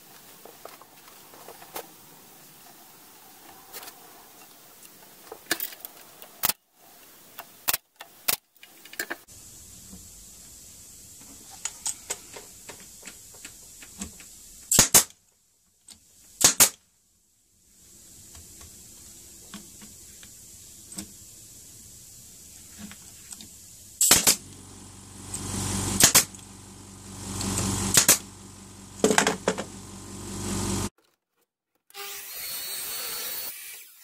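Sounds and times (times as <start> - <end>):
nail gun firing: 14.7 - 15.2, 16.4 - 16.8, 24.0 - 24.4, 26.0 - 26.4, 27.9 - 28.2.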